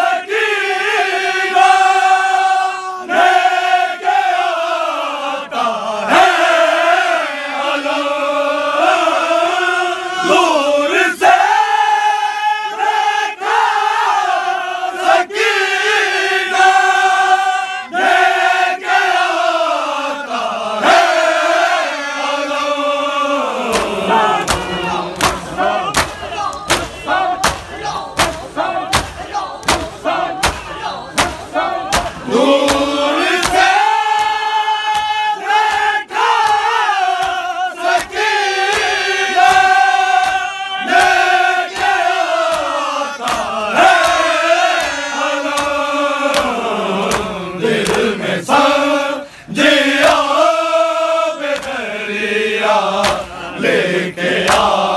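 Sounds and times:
men chanting in unison: 0.0s - 54.9s
hand slaps on chest: 23.7s - 37.4s, 38.0s - 48.1s, 51.5s - 51.8s, 53.0s - 53.4s, 54.4s - 54.8s.

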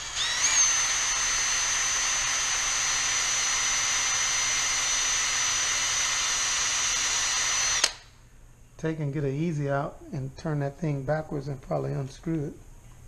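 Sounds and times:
cordless drill whine: 0.0s - 8.0s.

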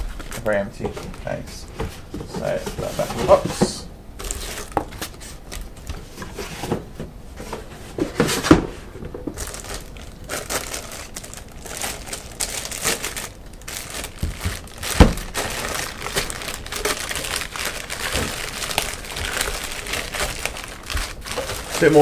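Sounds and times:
plastic wrapping crinkling: 9.2s - 22.0s.

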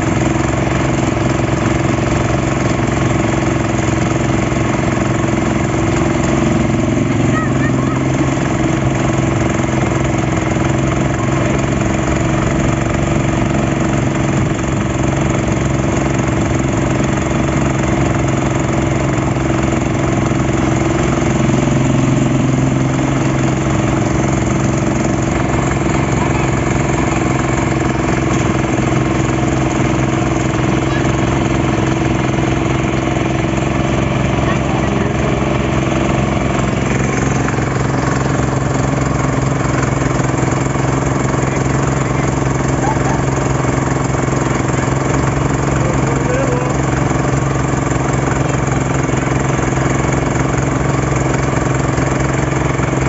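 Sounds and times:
motorboat engine running: 0.0s - 53.0s.

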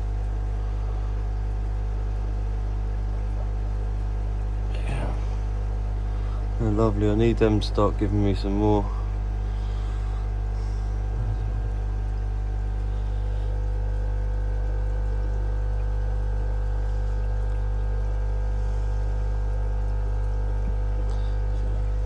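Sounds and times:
equipment humming: 0.0s - 22.0s
moving water: 4.8s - 22.0s.

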